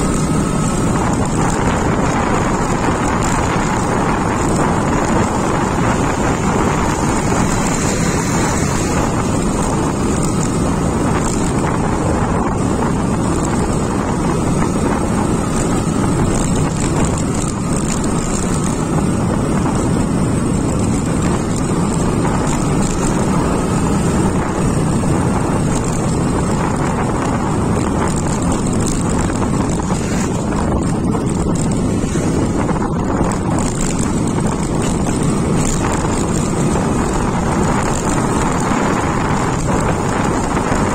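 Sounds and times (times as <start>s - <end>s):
motorcycle engine running: 0.0s - 40.9s
wind noise on microphone: 0.0s - 40.9s.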